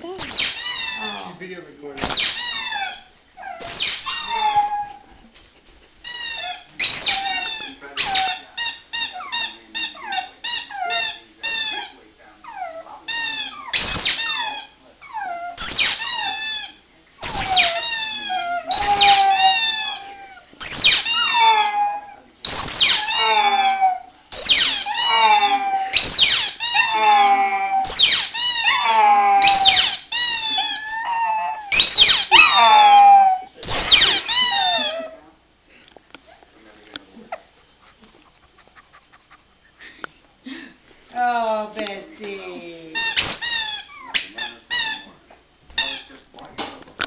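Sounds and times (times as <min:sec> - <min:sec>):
dog howling and whining: 0:00.0 - 0:01.3, 0:02.0 - 0:05.1, 0:06.2 - 0:08.5, 0:09.1 - 0:35.2.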